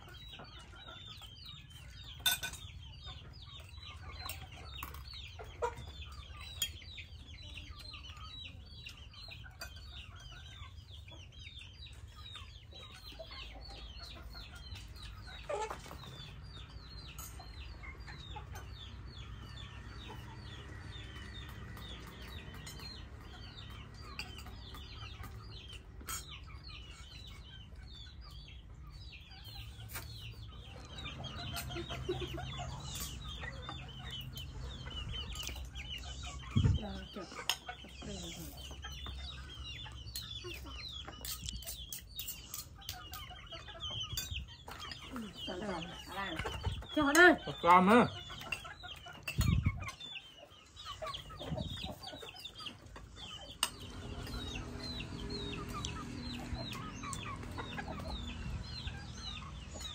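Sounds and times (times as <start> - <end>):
chickens calling: 0.0 - 59.9
kitchenware clinking: 2.2 - 2.7.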